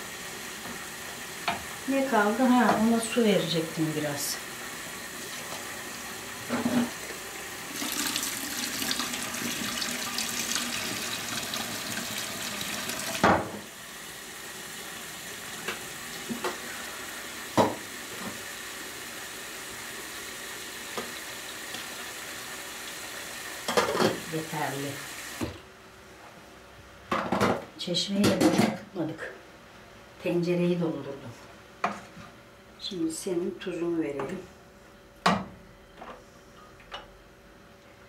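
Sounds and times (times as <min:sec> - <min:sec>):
tap water running into metal pot: 0:07.6 - 0:13.6.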